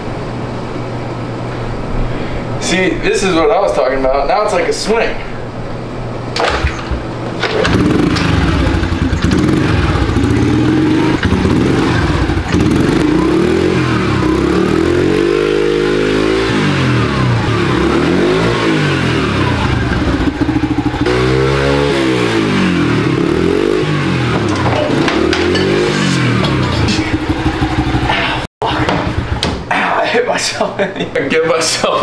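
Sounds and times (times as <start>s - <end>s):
dirt bike engine running: 7.0s - 28.4s, 29.0s - 29.6s.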